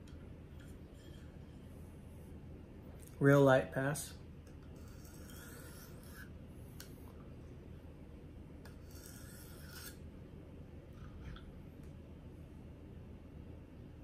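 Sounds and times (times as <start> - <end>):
sharpening stone scraping knife: 4.7 - 6.4, 8.7 - 10.1.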